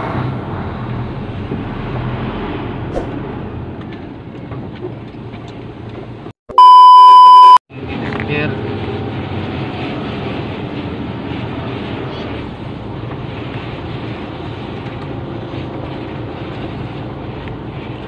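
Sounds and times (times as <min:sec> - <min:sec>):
road noise: 0:00.0 - 0:18.0.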